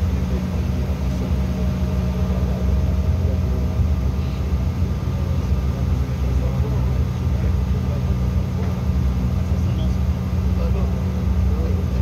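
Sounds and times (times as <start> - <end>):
jet engine low rumble: 0.0 - 12.0.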